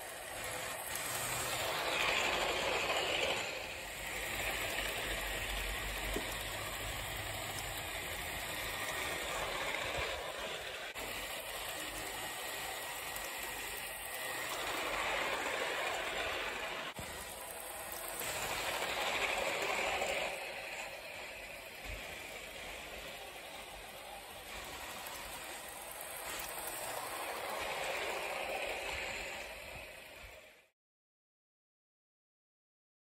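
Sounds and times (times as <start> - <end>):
model train running on track: 0.0 - 30.7.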